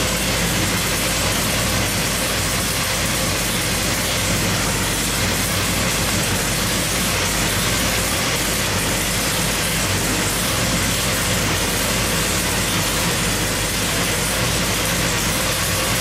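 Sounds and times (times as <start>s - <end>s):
engine low drone: 0.0s - 16.0s.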